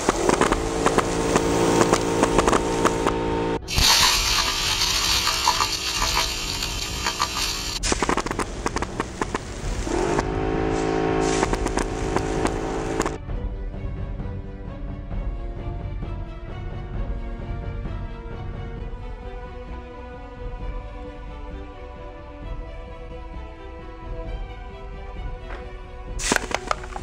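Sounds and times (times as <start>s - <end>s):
pellets striking: 0.0s - 13.2s, 26.2s - 27.0s
compressed air hiss: 3.7s - 8.2s, 26.2s - 27.0s.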